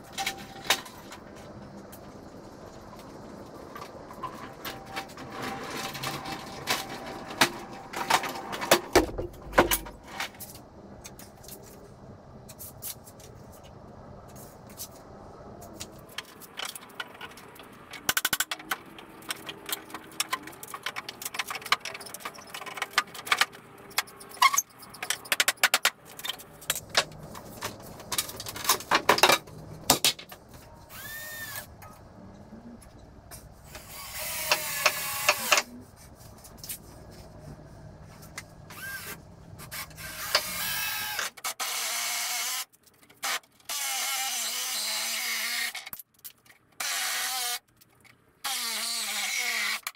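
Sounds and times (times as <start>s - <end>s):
handheld power tool running: 30.9s - 31.7s, 33.7s - 35.7s, 38.7s - 42.6s.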